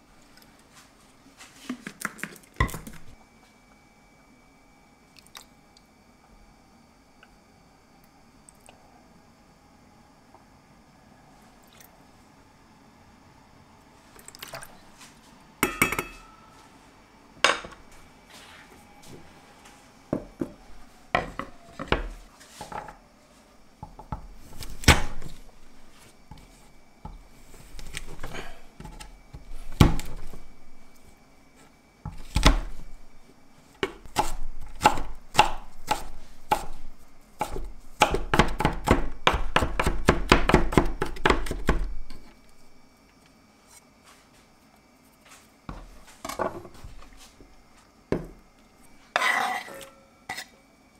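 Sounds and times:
fast knife chopping: 34.1 - 36.8, 37.4 - 41.8.

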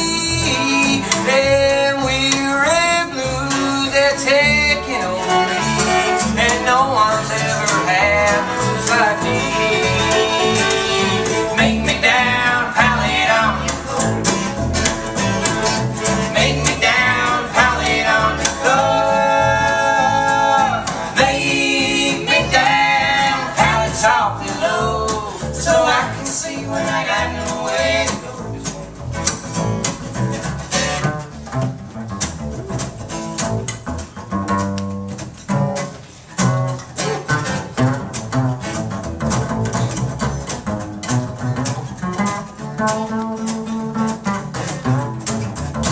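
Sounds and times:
plucked upright bass: 0.0 - 45.9
strummed acoustic guitar: 0.0 - 45.9
fiddle melody: 3.3 - 25.0.

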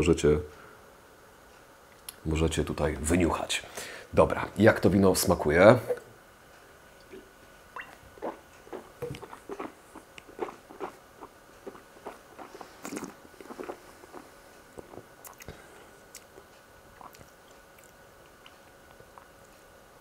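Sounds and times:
wet mouth clicks and smacks: 7.8 - 19.6.

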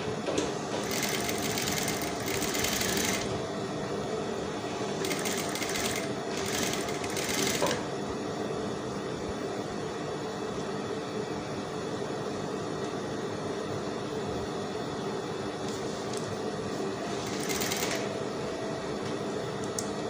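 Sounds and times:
sewing machine stitching: 0.8 - 3.4, 5.0 - 7.8, 17.2 - 18.1.

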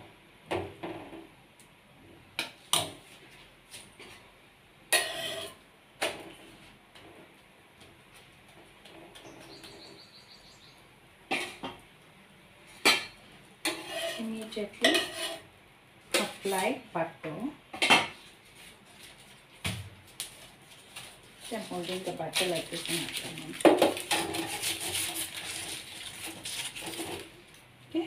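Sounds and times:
metal scrape: 5.0 - 5.6, 13.6 - 15.5, 24.1 - 27.3.

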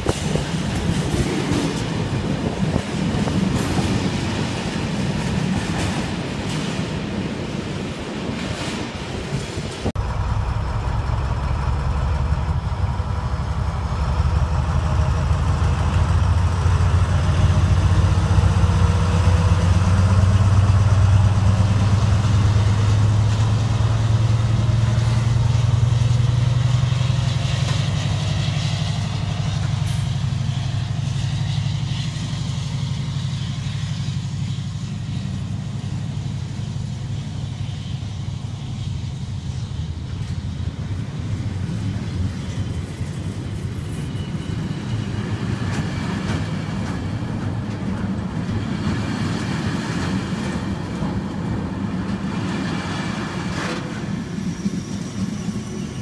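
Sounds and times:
diesel locomotive engine drone: 0.0 - 56.0.

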